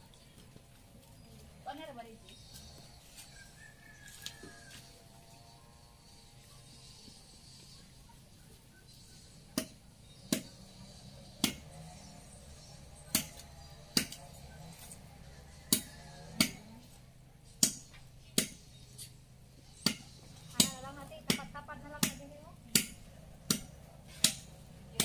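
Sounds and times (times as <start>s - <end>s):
sharp chopping strikes: 9.5s - 11.8s, 12.9s - 14.3s, 15.7s - 16.7s, 17.5s - 19.2s, 19.8s - 25.0s.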